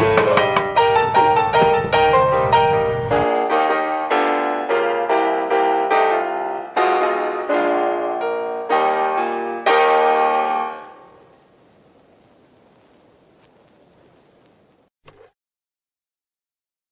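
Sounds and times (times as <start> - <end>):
gentle piano music: 0.0 - 11.5.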